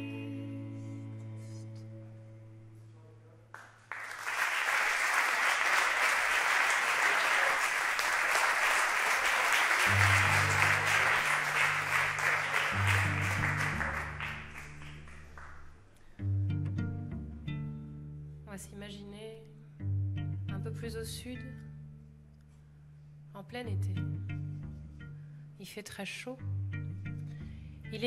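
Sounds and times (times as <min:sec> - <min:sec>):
audience applauding: 0:03.6 - 0:16.0
cello playing low notes: 0:09.8 - 0:18.5, 0:23.6 - 0:25.6, 0:26.4 - 0:28.0.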